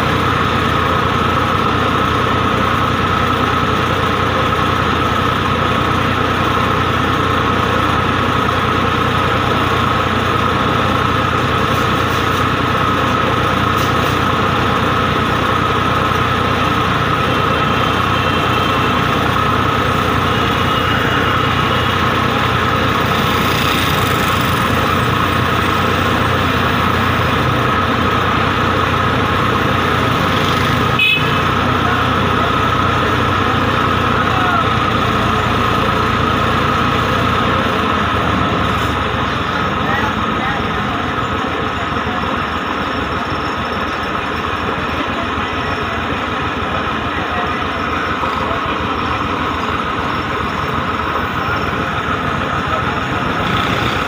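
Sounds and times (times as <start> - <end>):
tractor diesel engines idling: 0.0 - 54.0.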